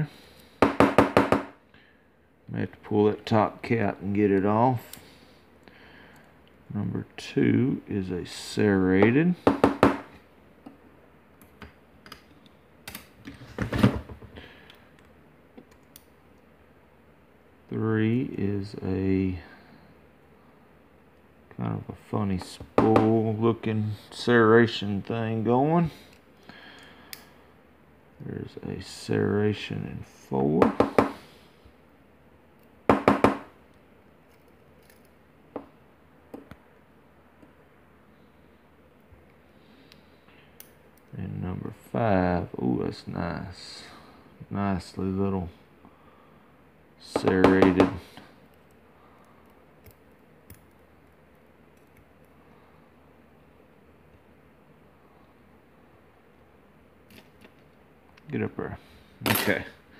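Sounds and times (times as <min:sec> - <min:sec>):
knocking on metal: 0:00.6 - 0:01.5, 0:32.9 - 0:33.5.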